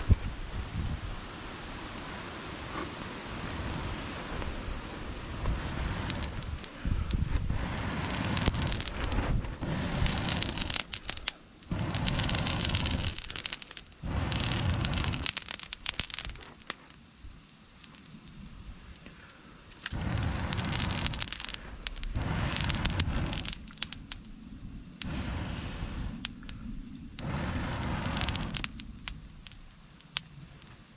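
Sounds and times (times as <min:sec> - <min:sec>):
fire crackling: 0:00.0 - 0:30.9
air blasts through blow pipe: 0:25.0 - 0:26.3.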